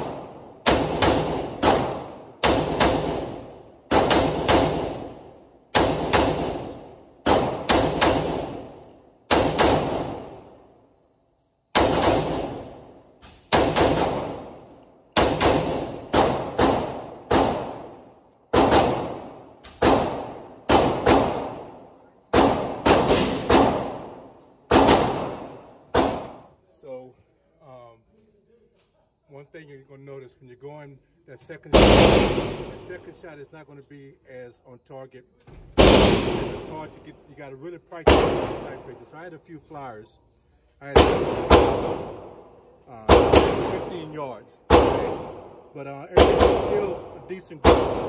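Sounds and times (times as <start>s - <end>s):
rifle gunshots echoing: 0.0s - 10.6s, 11.7s - 26.4s, 31.7s - 33.0s, 35.8s - 37.1s, 38.0s - 39.0s, 40.9s - 48.0s.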